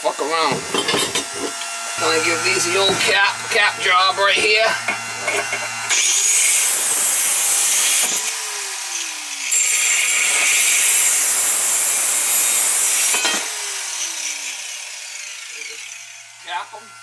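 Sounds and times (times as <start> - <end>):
angle grinder cutting pipe: 0.1 - 17.0.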